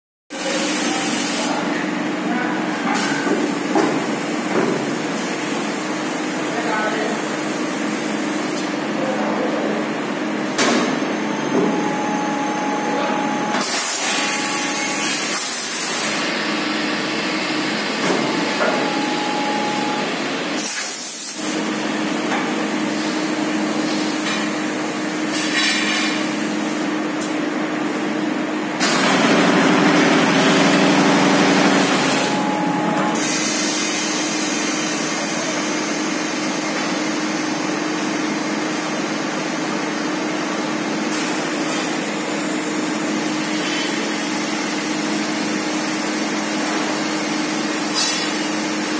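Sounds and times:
machine hum: 8.2 - 20.6, 27.7 - 34.3.

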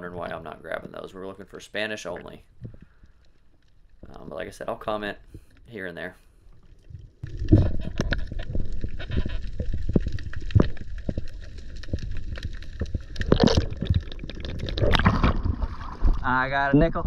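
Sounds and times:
rushes of bubbling: 6.6 - 16.6
water gurgling underwater: 6.7 - 16.6.

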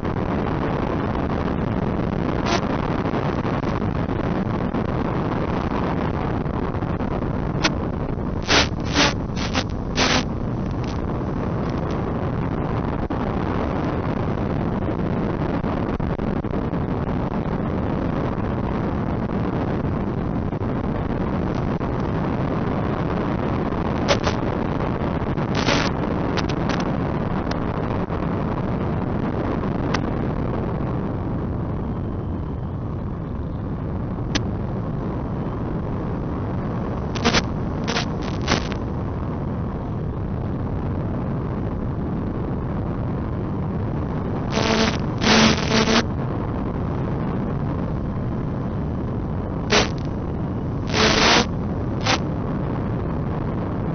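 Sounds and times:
rushing wind: 0.0 - 53.9
propeller noise: 7.6 - 12.1, 36.8 - 38.8, 44.4 - 46.0, 49.7 - 52.3
short sharp crackles: 8.4 - 12.0, 24.1 - 24.4, 37.2 - 38.8, 49.7 - 50.2.

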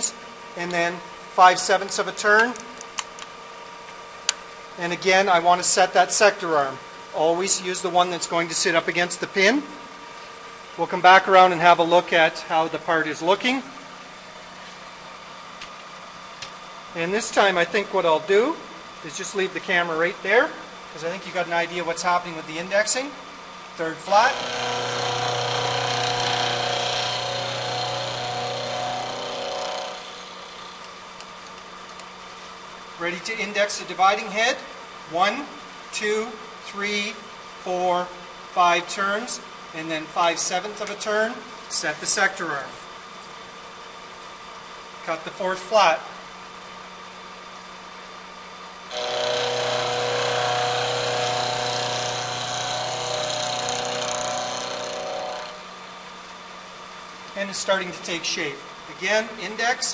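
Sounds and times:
milling machine cutting metal: 24.0 - 30.7, 48.9 - 55.6
spindle humming: 48.9 - 55.6.

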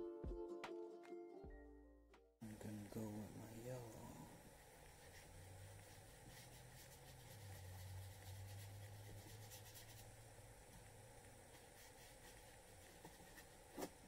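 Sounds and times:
paintbrush scratching on paper: 4.0 - 14.0.

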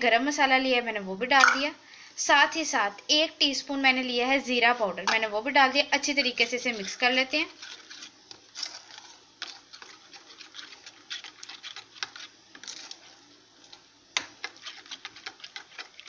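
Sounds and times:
metal spoon scraping enamel bowl: 6.0 - 13.0, 14.4 - 16.0.

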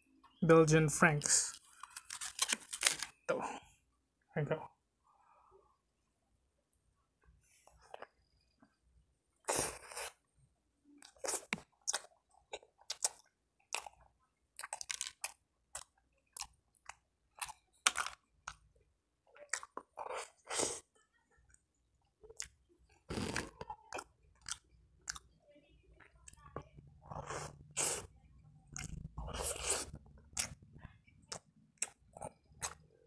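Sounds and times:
crunchy chewing: 11.0 - 18.6.

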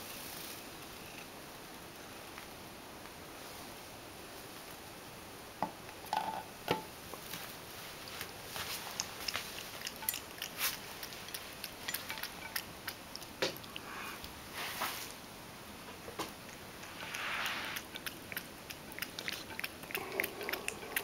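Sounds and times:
cat crunching dry kibble: 8.5 - 14.5, 16.2 - 21.0.

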